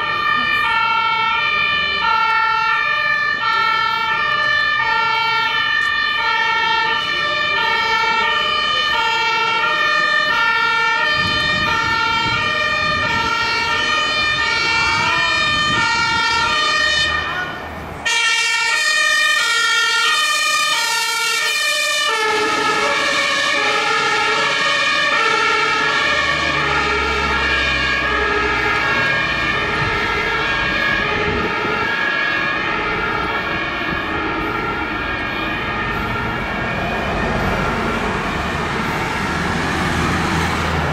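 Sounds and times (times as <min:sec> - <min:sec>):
two-tone siren: 0:00.0 - 0:40.9
low engine rumble: 0:22.2 - 0:40.9.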